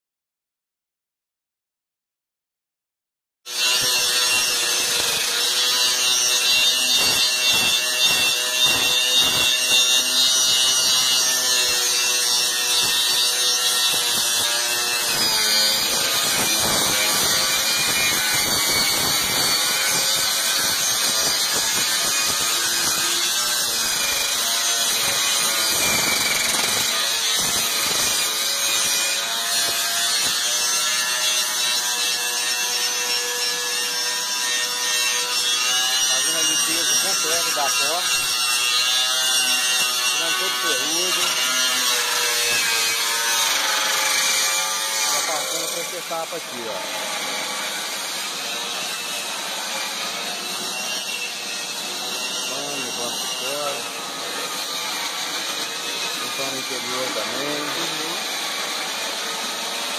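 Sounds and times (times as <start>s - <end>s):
wire brush grinder scratching metal: 3.5s - 59.9s
grinder motor whine: 35.1s - 59.9s.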